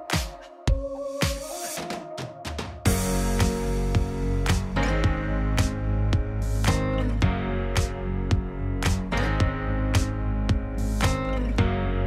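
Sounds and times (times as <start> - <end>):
background music with drum beat: 0.0 - 11.3
steady bass: 2.9 - 12.0.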